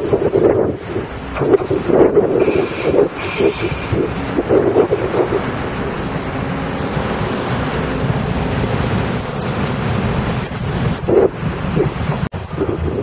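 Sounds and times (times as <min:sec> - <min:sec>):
passenger train passing: 0:00.0 - 0:13.0.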